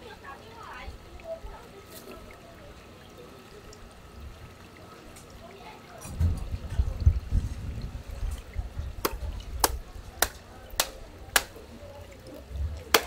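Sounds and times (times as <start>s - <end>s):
knife chopping on cutting board: 9.0s - 11.5s.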